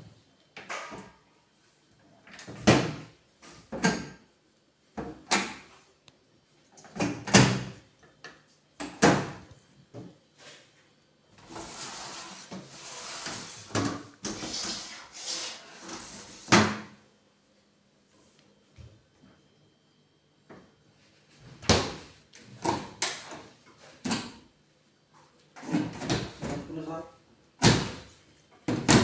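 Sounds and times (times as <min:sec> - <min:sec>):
cabinet doors opening and shutting: 0:02.3 - 0:04.2, 0:05.0 - 0:05.7, 0:06.8 - 0:07.8, 0:08.8 - 0:09.5, 0:11.4 - 0:17.0, 0:25.6 - 0:26.8
rough scraping noise: 0:11.4 - 0:16.5.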